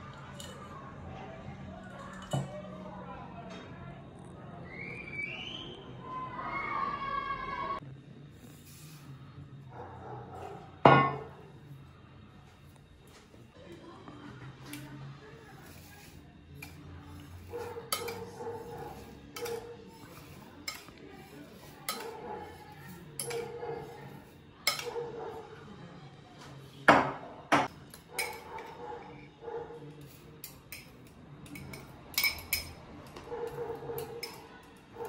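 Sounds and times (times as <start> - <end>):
metal spoon clinking on glass bowl: 16.6 - 24.0, 24.6 - 24.9, 27.9 - 28.7, 30.0 - 34.5.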